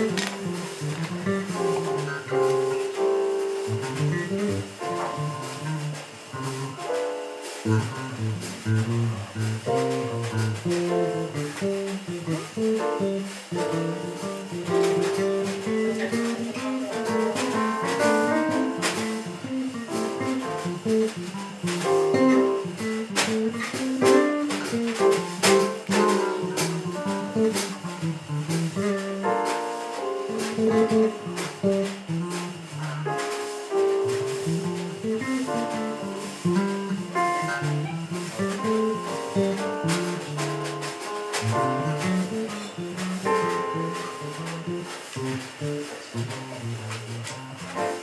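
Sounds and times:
electric bass: 0:00.0 - 0:06.8, 0:07.6 - 0:12.7, 0:13.3 - 0:29.2, 0:33.9 - 0:47.8
drums: 0:00.0 - 0:48.0.

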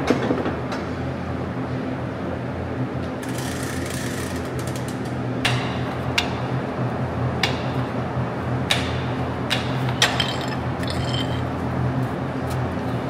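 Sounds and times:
low machine hum: 0:04.7 - 0:13.0
metal chains clinking: 0:10.0 - 0:11.4
metallic ringing: 0:10.0 - 0:11.5.

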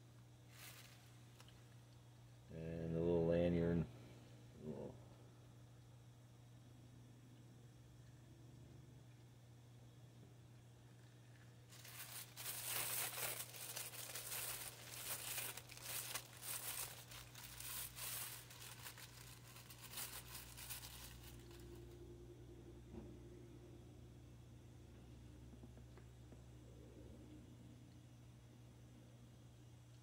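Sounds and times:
plastic bag crinkling: 0:00.5 - 0:01.6, 0:11.7 - 0:21.9.

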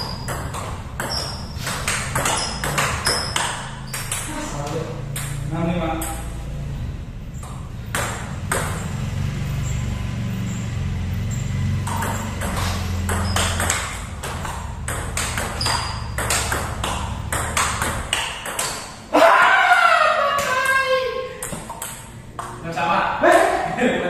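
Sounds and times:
table tennis ball clicking: 0:00.0 - 0:04.4, 0:05.0 - 0:06.3, 0:11.8 - 0:19.0, 0:21.4 - 0:22.6.

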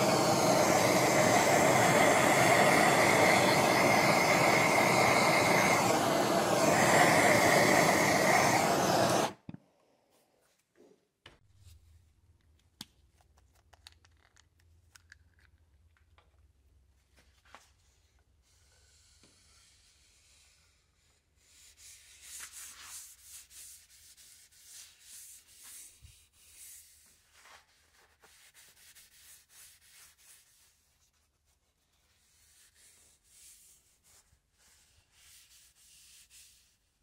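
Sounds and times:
propane torch hissing: 0:00.0 - 0:09.4.

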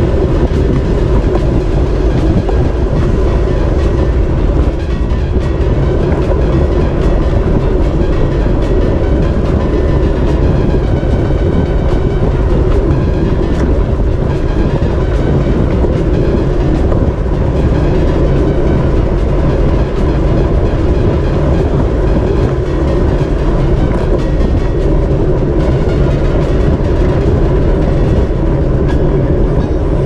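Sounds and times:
road and bike noise: 0:00.0 - 0:30.0
wind rushing over microphone: 0:00.0 - 0:30.0.

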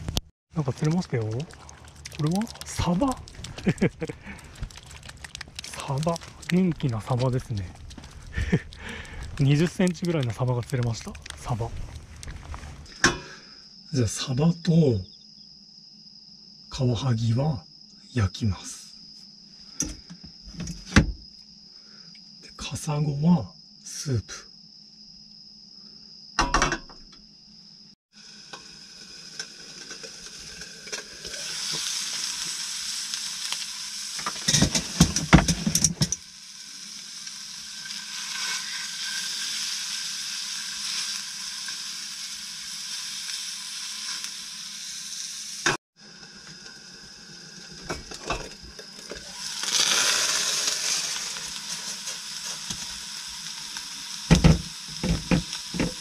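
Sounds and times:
fish sizzling in a frying pan: 0:00.6 - 0:13.3, 0:28.1 - 0:56.0
knocks: 0:54.3 - 0:56.0.

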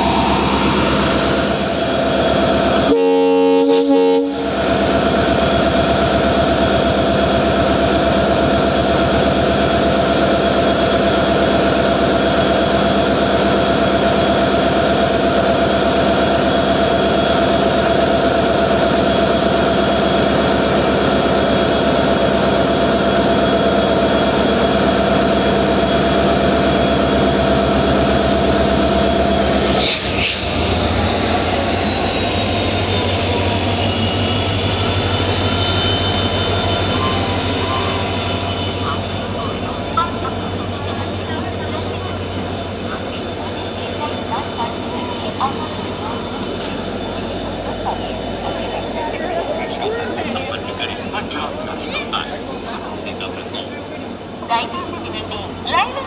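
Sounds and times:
locomotive engine running with whine: 0:00.0 - 0:56.0
locomotive horn blast: 0:02.8 - 0:04.6.

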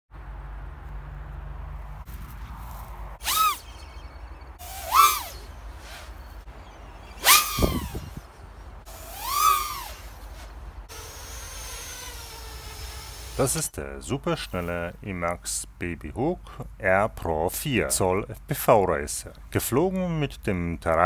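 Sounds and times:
quadcopter motors whining: 0:03.2 - 0:06.2, 0:07.2 - 0:08.3, 0:08.9 - 0:13.7.

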